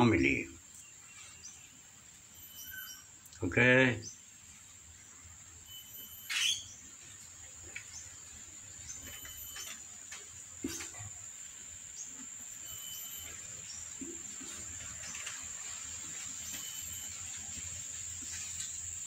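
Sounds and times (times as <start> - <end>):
kittens tapping and scraping in tub: 8.9 - 11.2.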